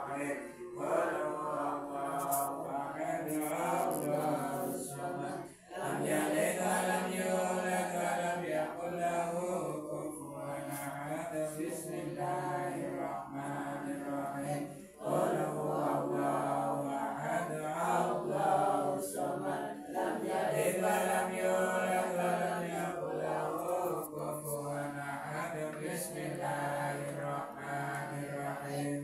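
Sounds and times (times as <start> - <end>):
congregation chanting in unison: 0.0 - 29.0.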